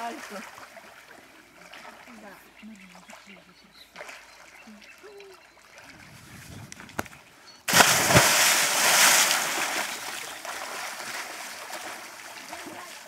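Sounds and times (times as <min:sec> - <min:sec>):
water churning and sloshing: 0:00.0 - 0:13.0
loud splash into water: 0:07.7 - 0:11.3.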